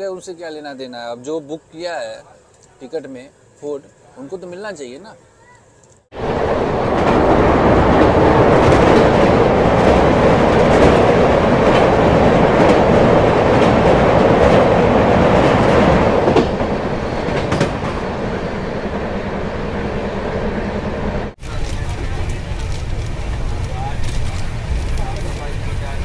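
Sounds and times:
train wheels rumbling: 6.1s - 26.0s
wheels clicking over rail joints: 21.4s - 26.0s.

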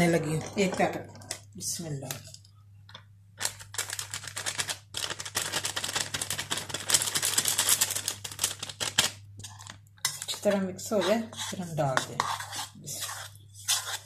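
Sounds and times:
plastic sachet crinkling: 3.4s - 9.2s.

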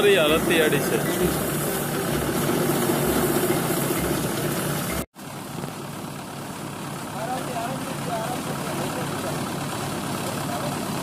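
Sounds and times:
thresher running: 0.0s - 5.1s.

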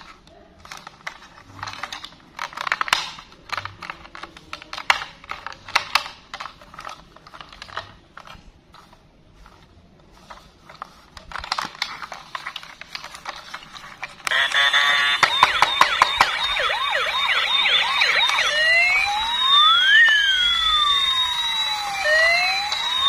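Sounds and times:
plastic toy clicking and rattling: 0.0s - 8.9s.

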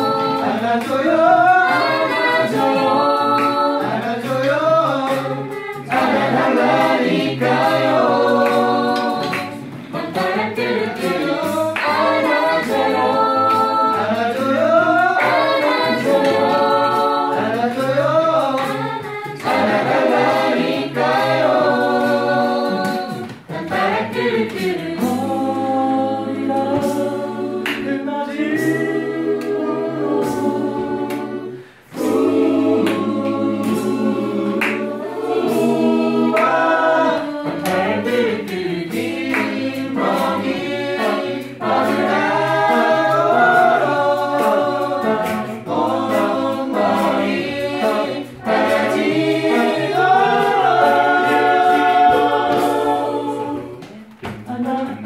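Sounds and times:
mixed choir singing: 0.0s - 55.0s.

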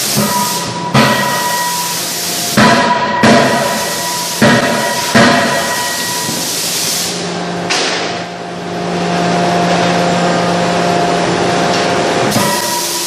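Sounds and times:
sharp metal impact: 0.0s - 6.6s, 12.3s - 13.0s
loud steady hiss: 0.0s - 7.2s
low machine hum: 0.0s - 13.0s.

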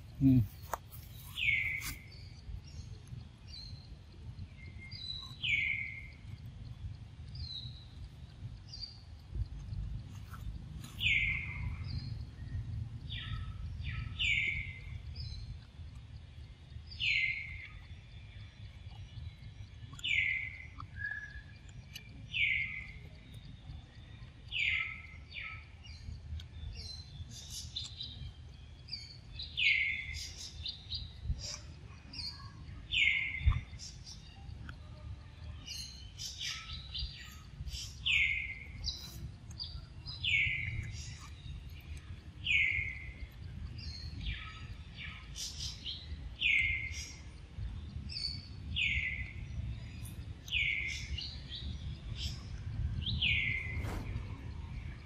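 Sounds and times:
steady low rumble: 2.2s - 20.0s, 47.2s - 55.0s.

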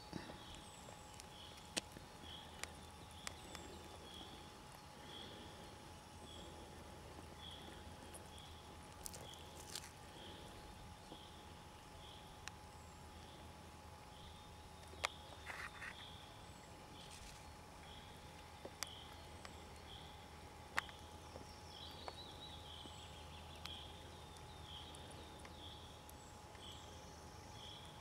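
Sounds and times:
faint steady hum: 0.0s - 28.0s.

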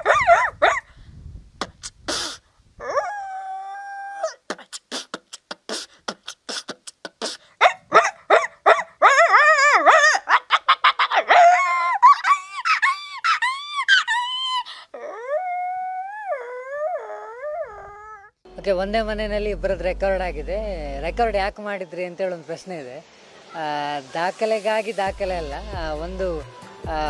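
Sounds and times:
rapid pitched yelps: 0.0s - 0.9s, 1.8s - 14.7s
woman mimicking animal calls: 1.6s - 2.4s, 3.1s - 7.8s
quick mouth clicks: 1.6s - 2.5s, 4.5s - 7.5s.

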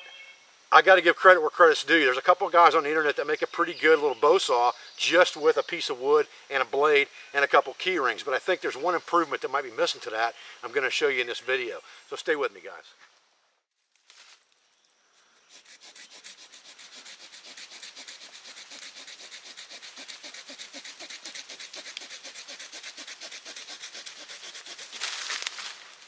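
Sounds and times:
folding saw cutting sapling: 15.4s - 26.0s.

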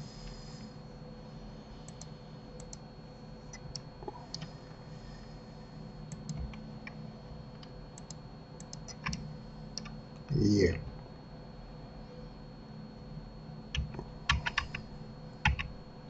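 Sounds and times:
faint electrical hum: 0.0s - 16.0s
keyboard and mouse clicks: 6.1s - 7.0s, 7.6s - 9.2s, 13.8s - 14.8s, 15.4s - 15.7s.

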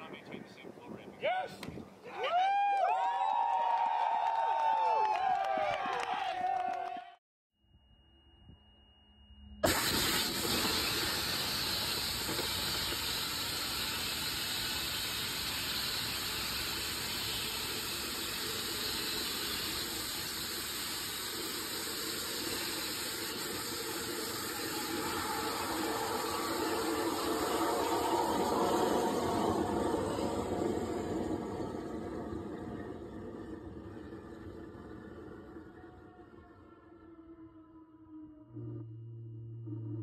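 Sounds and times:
rocket engine firing: 9.6s - 36.3s.

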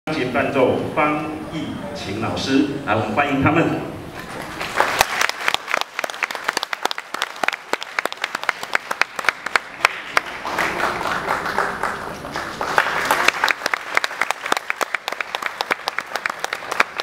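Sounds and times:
audience applauding: 4.2s - 17.0s.

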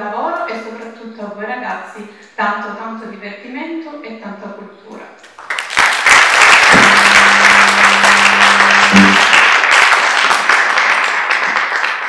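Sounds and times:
audience applauding: 5.4s - 12.0s
low steady hum: 6.7s - 9.6s.

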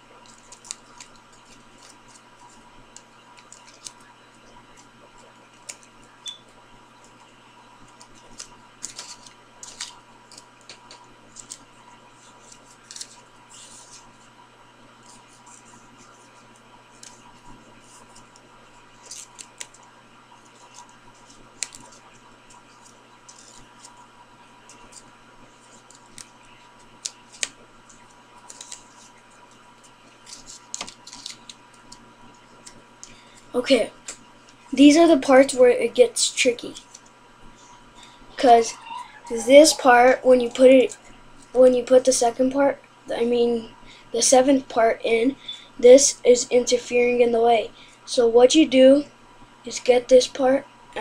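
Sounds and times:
faint steady hum: 0.0s - 51.0s
paper rustle: 0.2s - 4.9s, 7.8s - 14.3s, 15.0s - 24.0s, 24.6s - 34.6s
stiff paper crinkling and tapping: 0.2s - 6.1s, 7.8s - 14.2s, 15.0s - 24.0s, 24.6s - 33.2s.

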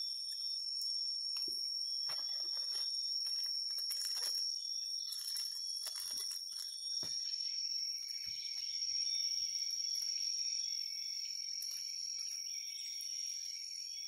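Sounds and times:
insect chorus shrill tone: 0.0s - 14.0s
hands rustling a plant: 2.1s - 4.5s, 5.1s - 6.8s.

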